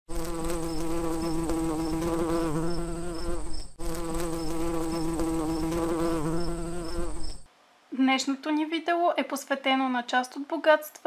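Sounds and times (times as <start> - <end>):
bee buzzing: 0.1 - 7.5.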